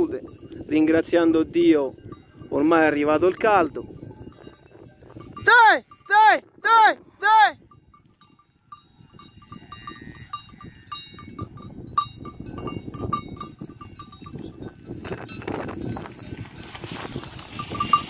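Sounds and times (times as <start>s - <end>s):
livestock bells clanking: 0.0s - 18.0s
rustling and shuffling on grass: 15.1s - 18.0s.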